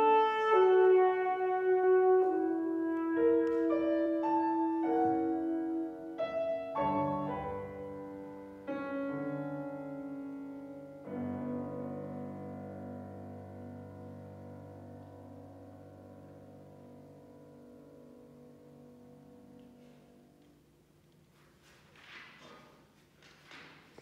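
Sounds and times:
alto saxophone: 0.0s - 12.0s
piano chords: 0.0s - 21.0s.

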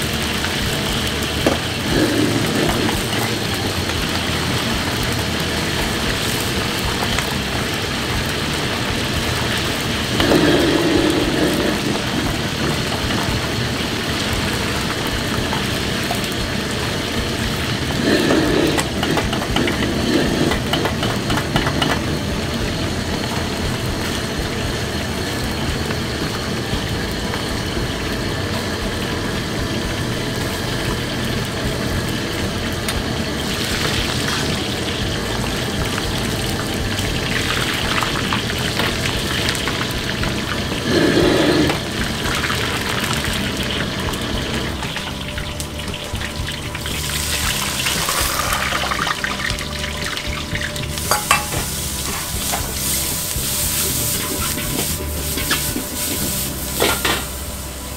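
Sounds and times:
gas burner rumble: 0.0s - 57.9s
oil bubbling and sizzling: 0.0s - 57.9s
hiss of oil poured out: 1.4s - 6.6s, 10.0s - 13.7s, 17.4s - 21.1s, 40.8s - 44.7s, 46.8s - 49.4s, 51.0s - 57.8s
ladle stirring: 51.0s - 57.3s.

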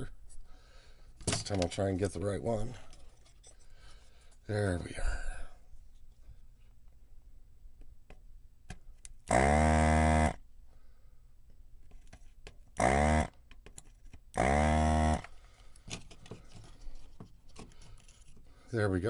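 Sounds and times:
desoldering pump humming: 14.4s - 18.6s.

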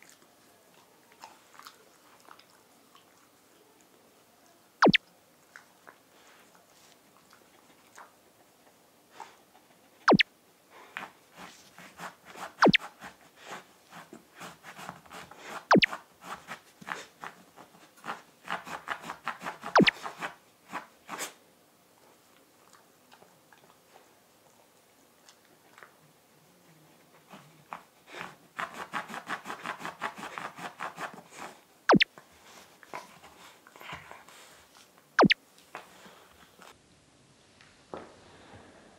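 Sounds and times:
puppy licking the floor: 0.0s - 10.0s, 10.7s - 21.4s, 22.0s - 36.8s
sharp clicks: 12.6s - 12.8s.

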